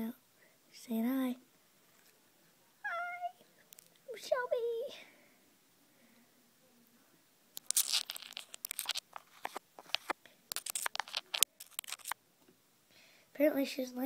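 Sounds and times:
crab scrabbling on phone: 7.6 - 12.2.

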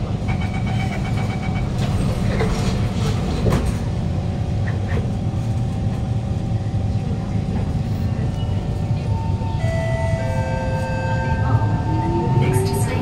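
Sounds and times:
low hum inside metro car: 0.0 - 13.0.

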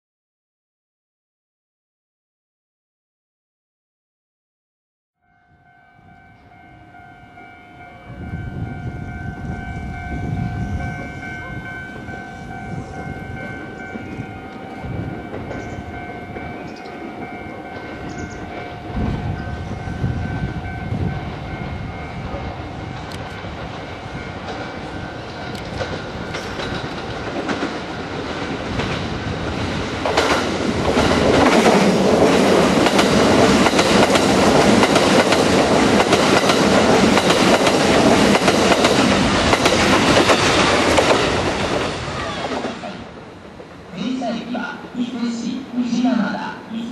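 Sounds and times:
train passing through station: 5.2 - 46.9
wheels rushing on rail: 5.6 - 44.0.

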